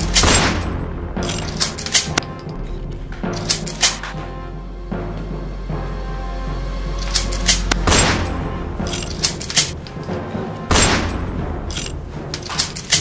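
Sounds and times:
echoing booms: 0:00.0 - 0:01.8, 0:07.7 - 0:08.9, 0:09.8 - 0:12.3
gunshots: 0:00.0 - 0:02.5, 0:07.0 - 0:13.0
background music: 0:00.0 - 0:13.0.

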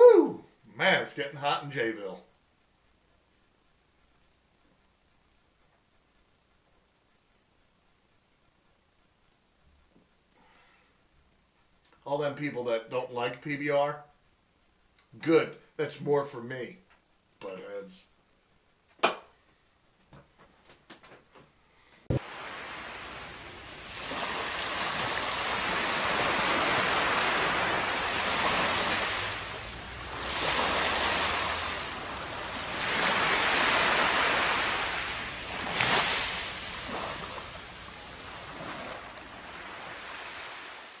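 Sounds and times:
surf washing over sand: 0:22.1 - 0:41.0.

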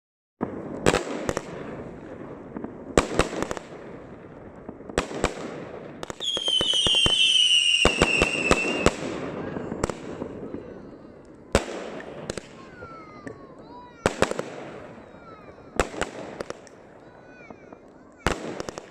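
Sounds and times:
firework bangs: 0:00.4 - 0:18.9
rapid firework crackling: 0:00.5 - 0:18.9
falling firework whistle: 0:06.2 - 0:09.0.

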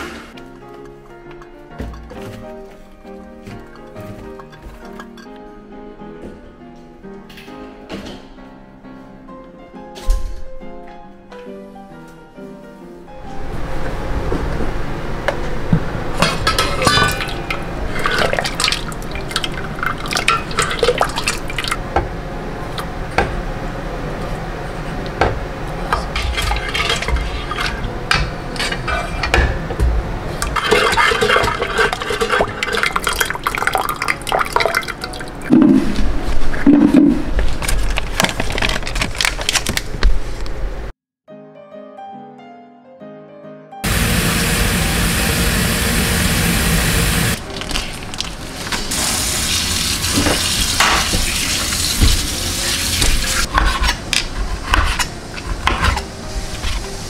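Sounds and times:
metal pot lid clinking: 0:16.2 - 0:18.5
water sloshing: 0:30.5 - 0:36.0.

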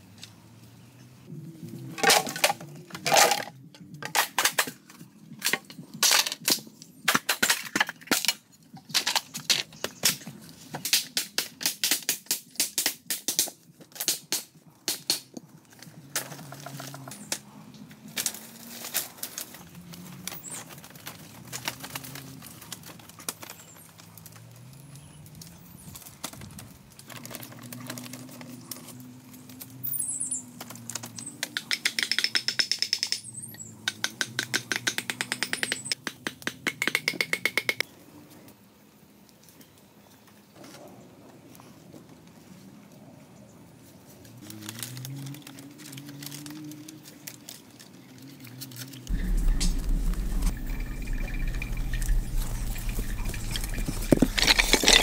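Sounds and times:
bamboo poles clattering: 0:01.8 - 0:17.4, 0:48.7 - 0:55.0
low wavering hum: 0:49.1 - 0:55.0.

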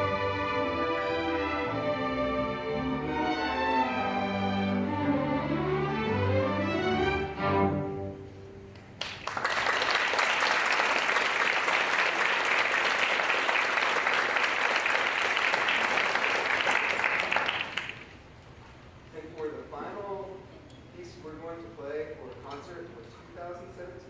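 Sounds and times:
string orchestra playing: 0:00.0 - 0:08.6
audience applause: 0:09.0 - 0:18.2.

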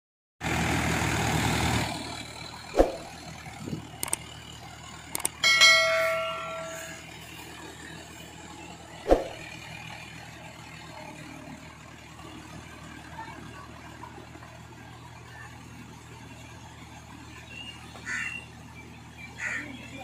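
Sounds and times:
tractor diesel engine running: 0:00.4 - 0:20.0
chime: 0:05.4 - 0:07.2.

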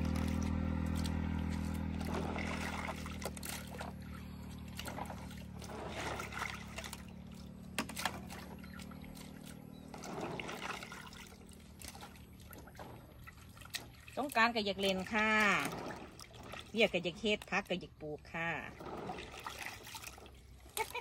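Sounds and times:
steady low hum: 0:00.0 - 0:14.2
water sloshing and splashing: 0:00.0 - 0:21.0.

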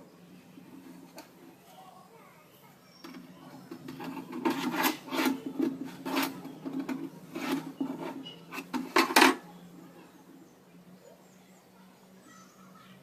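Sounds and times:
wood and metal scraping on table: 0:03.0 - 0:09.4.

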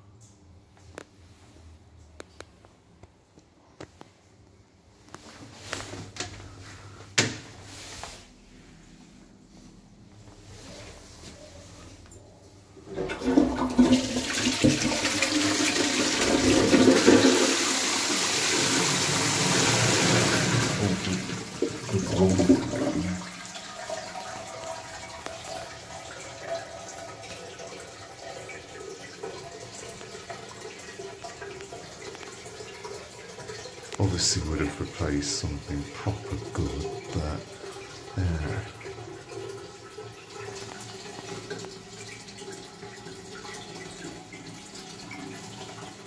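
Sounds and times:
toilet flushing water rush: 0:12.8 - 0:46.0.

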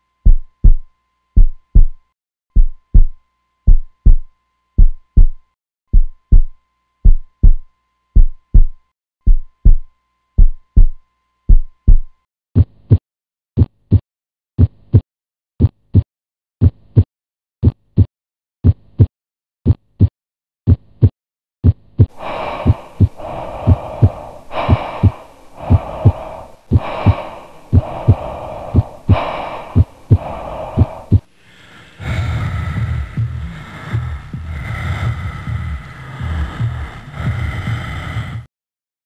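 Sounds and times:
heartbeat thumps: 0:00.2 - 0:00.8, 0:01.4 - 0:07.6, 0:08.2 - 0:13.0, 0:14.6 - 0:15.0, 0:15.6 - 0:20.1, 0:20.7 - 0:31.3, 0:32.0 - 0:38.5
heavy gasping breaths: 0:22.1 - 0:38.5
dense throbbing sound: 0:32.0 - 0:38.5.

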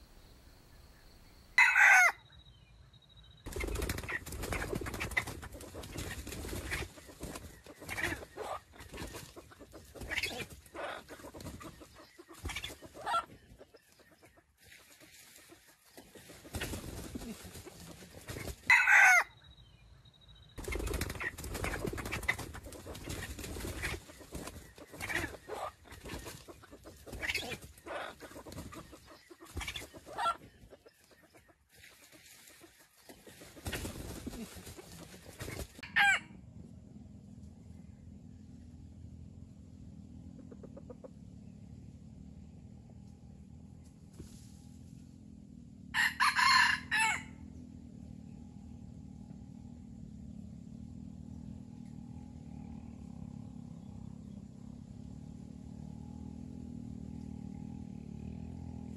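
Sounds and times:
rooster clucking: 0:01.6 - 0:02.2, 0:04.0 - 0:14.4, 0:15.4 - 0:19.3, 0:20.7 - 0:31.5, 0:33.4 - 0:36.3, 0:40.3 - 0:41.2
rooster crowing: 0:01.6 - 0:02.3, 0:18.7 - 0:19.4, 0:45.9 - 0:47.4.

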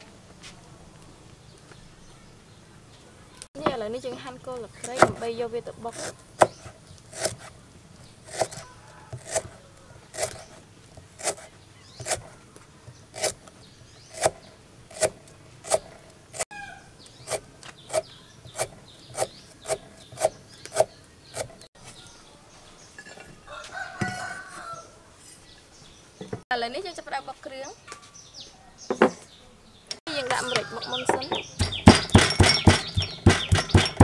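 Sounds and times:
knife chopping on wooden board: 0:04.9 - 0:05.3, 0:05.9 - 0:07.5, 0:08.3 - 0:09.6, 0:11.2 - 0:12.3, 0:13.2 - 0:13.4, 0:14.1 - 0:15.9, 0:17.3 - 0:21.6, 0:31.1 - 0:34.0
chicken calling: 0:08.4 - 0:10.6, 0:16.5 - 0:17.2, 0:30.1 - 0:31.9.

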